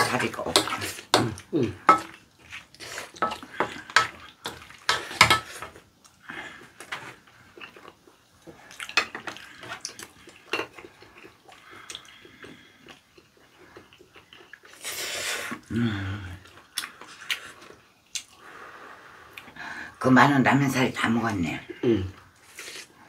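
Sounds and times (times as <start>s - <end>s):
spatula scraping frying pan: 0.0s - 1.2s, 1.8s - 5.8s.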